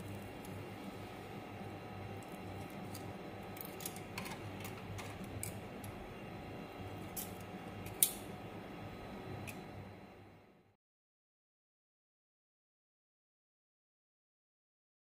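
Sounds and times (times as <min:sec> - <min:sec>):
low steady hum: 0:00.0 - 0:10.8.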